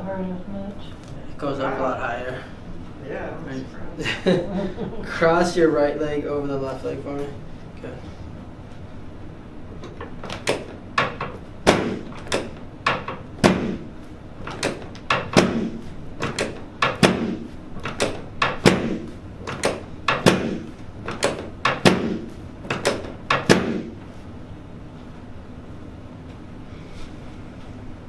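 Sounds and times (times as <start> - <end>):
chiropractic table knocking: 9.8 - 24.0.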